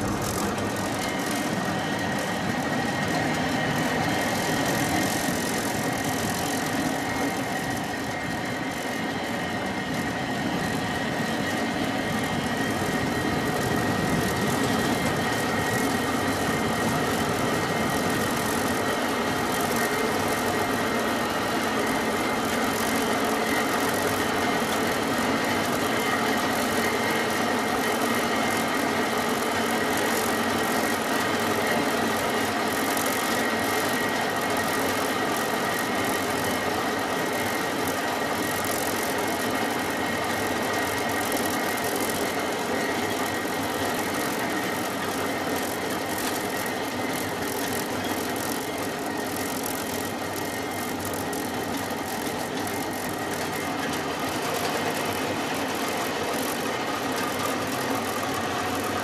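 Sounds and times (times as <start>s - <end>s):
high whine: 0.0s - 29.2s
cable car mechanical running noise: 0.0s - 59.0s.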